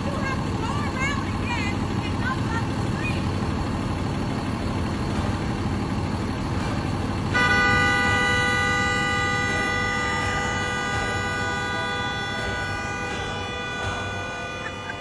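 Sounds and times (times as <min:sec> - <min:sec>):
vehicle engine idling: 0:00.0 - 0:15.0
car horn blaring: 0:07.3 - 0:15.0.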